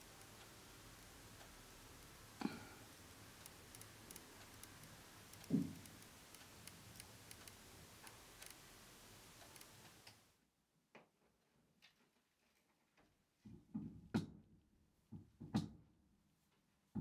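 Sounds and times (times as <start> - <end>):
alarm clock ticking: 0.0 - 10.0
faint clicks: 2.3 - 10.3.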